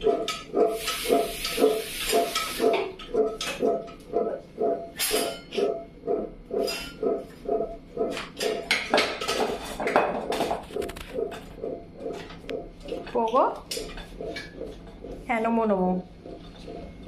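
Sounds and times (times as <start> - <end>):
steel pots and lids clanking: 0.0 - 3.6
steady pulsing sound: 0.0 - 8.7, 10.3 - 17.0.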